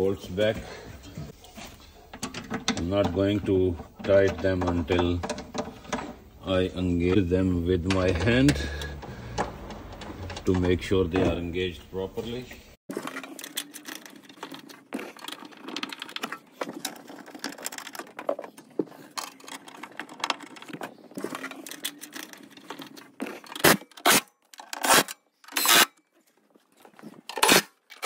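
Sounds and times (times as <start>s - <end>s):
metal bolts clicking and rattling: 2.0s - 11.7s.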